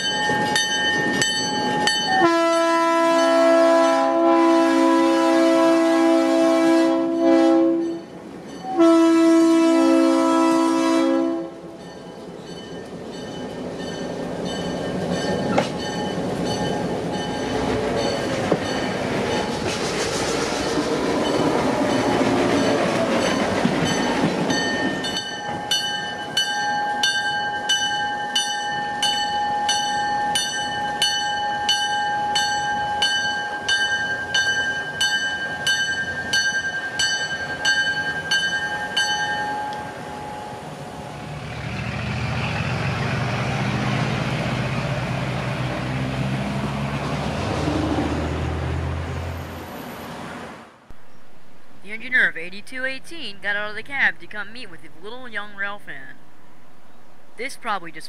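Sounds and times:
locomotive running past: 0.0s - 57.4s
locomotive horn blasts: 2.1s - 8.0s, 8.7s - 11.7s
bell ringing: 11.8s - 19.5s.

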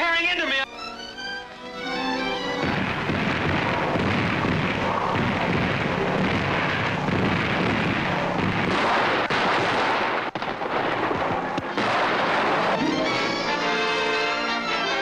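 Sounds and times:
explosions: 2.6s - 14.0s
gunfire: 2.6s - 14.3s.

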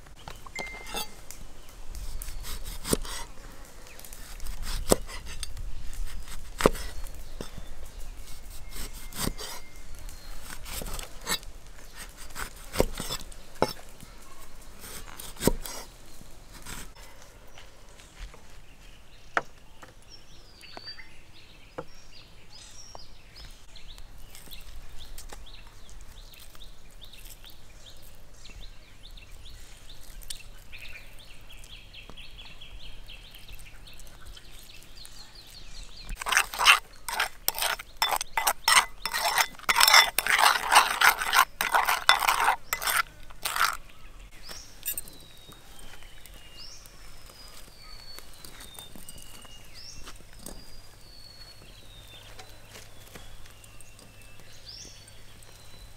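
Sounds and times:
birds chirping and trilling: 0.1s - 12.2s, 16.9s - 55.9s
rapid scraping and knocking: 36.2s - 43.8s.

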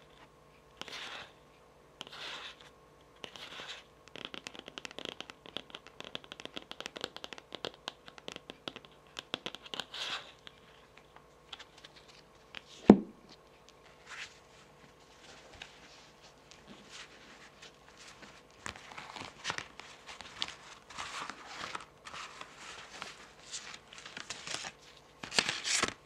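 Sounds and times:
fingernails scratching a card: 0.8s - 1.4s, 2.0s - 10.5s
fingernails tapping a card: 3.2s - 9.9s.

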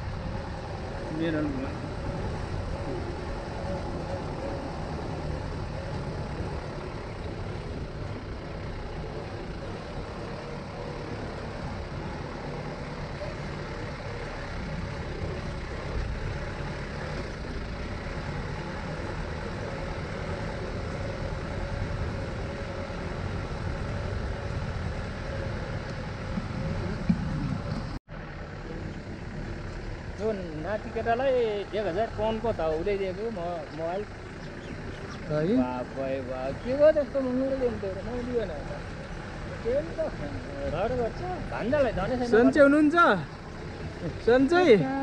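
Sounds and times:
road rumble: 0.0s - 45.0s
vehicle engine hum: 0.0s - 45.0s.

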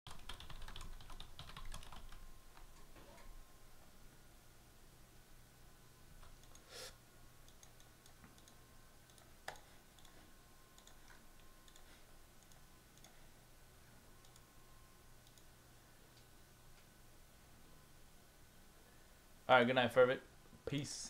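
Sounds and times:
faint low hum: 0.1s - 21.0s
keyboard and mouse clicks: 6.2s - 6.7s, 7.4s - 10.2s, 10.8s - 13.2s, 14.2s - 14.4s, 15.2s - 15.5s.

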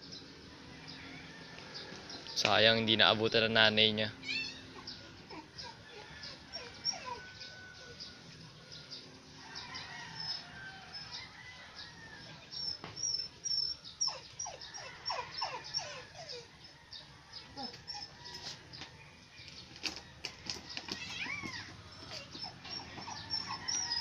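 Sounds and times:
puppy squealing: 4.1s - 8.0s, 13.0s - 16.5s, 17.6s - 18.2s, 21.0s - 24.0s.

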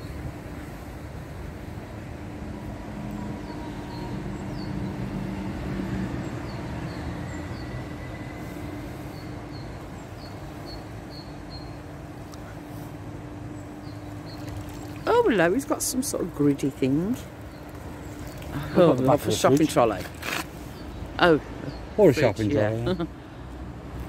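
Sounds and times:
vehicle rumble and hum: 0.0s - 24.0s
small bird chirping: 13.6s - 15.8s.

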